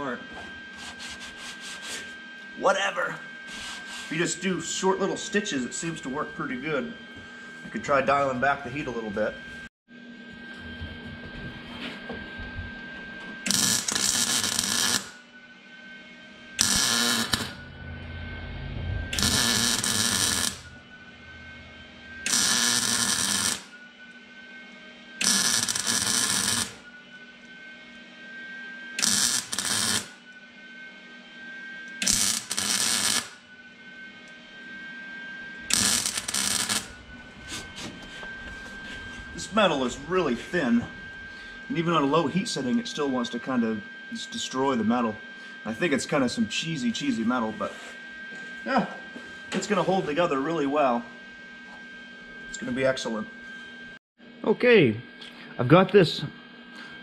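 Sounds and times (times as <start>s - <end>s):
welding arc crackle: 13.5s - 15.2s, 16.6s - 17.6s, 19.2s - 20.7s, 22.3s - 23.7s, 25.2s - 26.8s, 29.0s - 30.2s, 32.0s - 33.4s, 35.7s - 37.0s.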